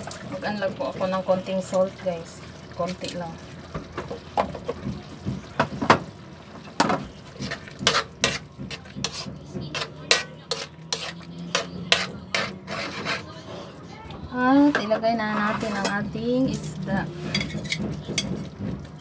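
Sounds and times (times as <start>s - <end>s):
spoon clinking and scraping a wok: 7.4s - 13.3s, 14.8s - 18.5s.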